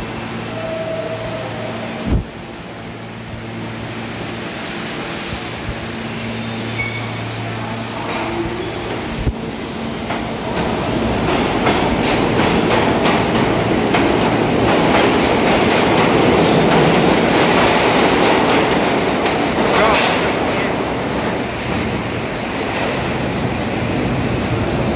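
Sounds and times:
subway train rumbling past: 0.0s - 24.9s
train wheel squeal: 0.6s - 1.9s, 6.0s - 7.3s, 8.1s - 9.2s.

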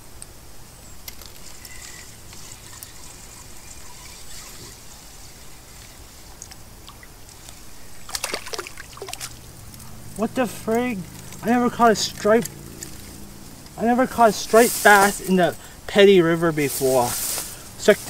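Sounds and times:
water trickling: 2.4s - 13.1s
fish splashing at surface: 8.0s - 9.4s.

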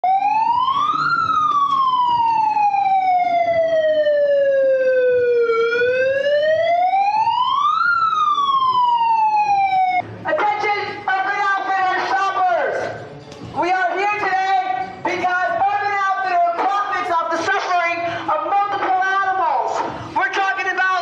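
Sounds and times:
wailing siren: 0.0s - 10.0s.

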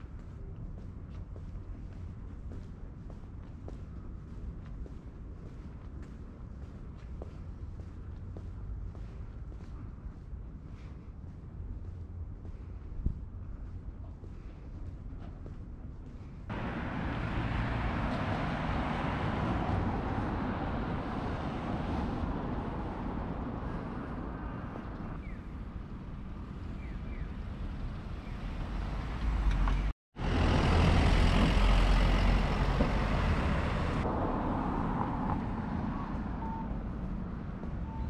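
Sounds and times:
traffic rumble: 0.0s - 38.0s
faint short beeps: 36.4s - 36.8s.

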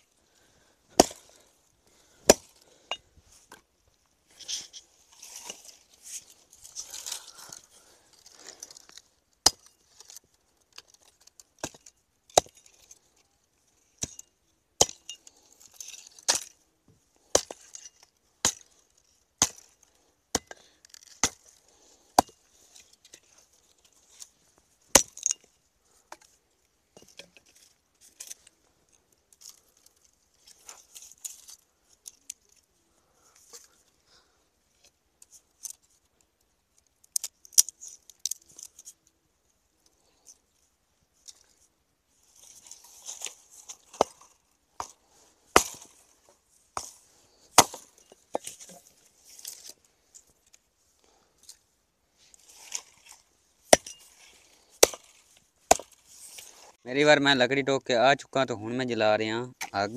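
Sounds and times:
twigs clicking and snapping: 4.3s - 13.2s, 17.2s - 24.4s, 27.1s - 32.7s, 34.8s - 39.1s, 52.3s - 56.8s.

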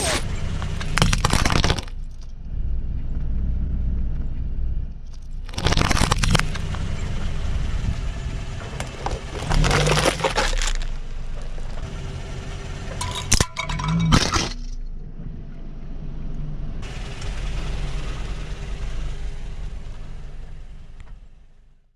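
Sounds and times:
car low rumble: 0.0s - 21.9s
plastic cup crumpling: 0.8s - 2.1s, 5.2s - 6.7s, 8.9s - 11.0s.

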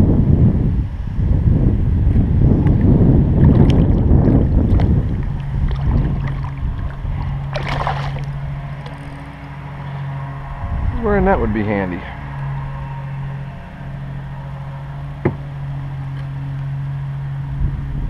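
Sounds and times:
steady low hum: 0.0s - 18.0s
wind buffeting microphone: 0.0s - 18.0s
fish splashing in water: 3.4s - 9.8s.

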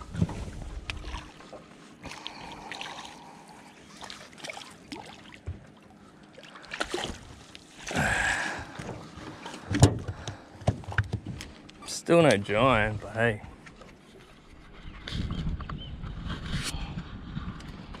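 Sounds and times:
fish splashing and thrashing: 0.0s - 11.4s
knocks on boat: 9.7s - 11.4s.

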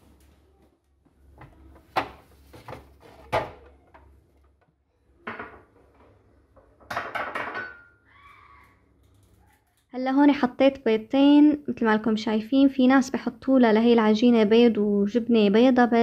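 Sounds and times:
dishes knocking: 5.2s - 5.9s, 6.6s - 8.0s.

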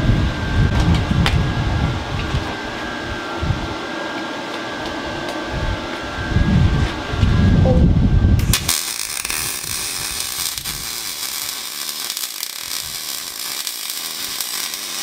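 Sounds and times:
welding arc crackling hiss: 8.4s - 15.0s.

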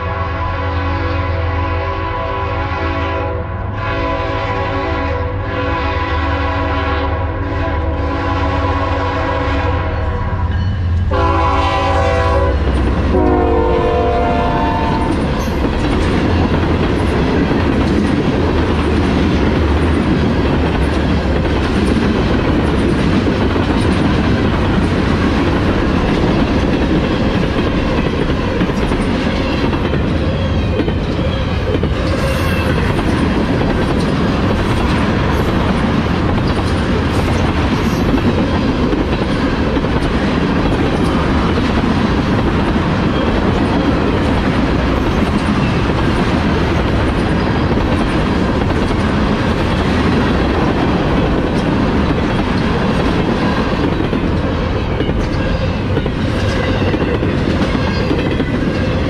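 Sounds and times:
locomotive air horn: 0.0s - 10.5s, 11.1s - 15.2s
diesel locomotive rumble: 0.0s - 59.0s
train cars rumbling and rattling: 0.0s - 59.0s
wheels clicking over rail joints: 14.8s - 59.0s.

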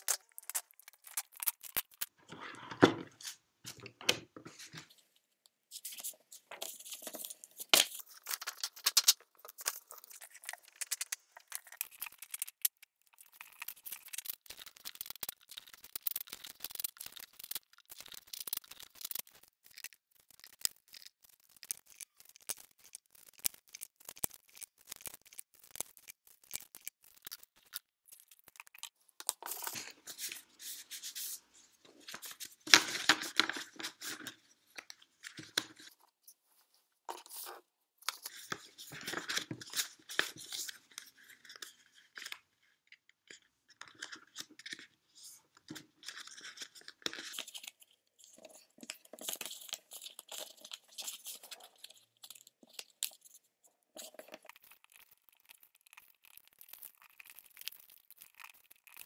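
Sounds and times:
paper rustling and crackling: 5.7s - 36.1s, 37.1s - 42.4s, 43.8s - 53.4s.

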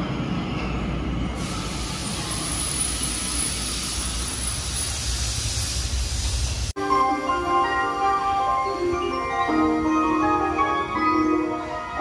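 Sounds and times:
train rumbling into station: 0.0s - 12.0s
hiss: 1.4s - 6.7s.

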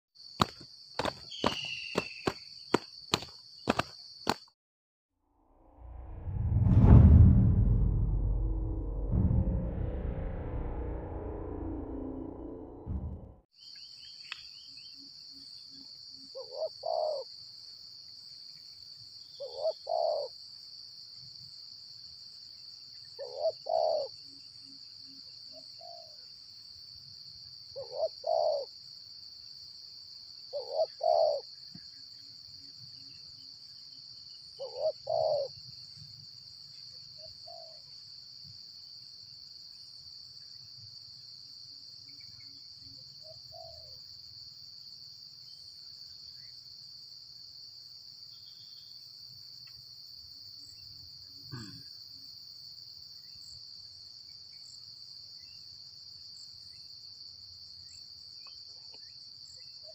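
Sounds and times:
dove cooing: 16.3s - 17.2s, 19.4s - 20.3s, 23.2s - 24.1s, 27.8s - 28.7s, 30.5s - 31.4s, 34.6s - 35.5s, 43.5s - 44.0s.

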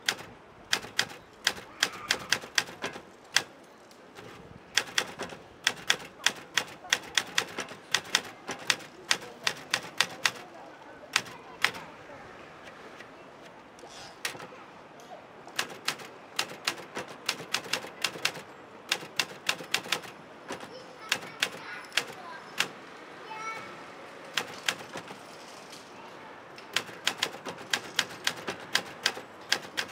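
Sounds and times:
typewriter key strikes: 0.0s - 3.6s, 4.2s - 10.4s, 11.2s - 11.8s, 14.2s - 14.5s, 15.6s - 22.8s, 24.4s - 25.2s, 26.7s - 29.9s.

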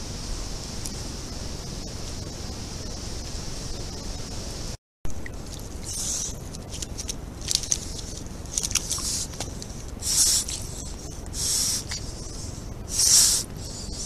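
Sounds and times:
small clicks and rustles: 5.2s - 11.3s
otter huffing breathily: 5.4s - 14.0s.

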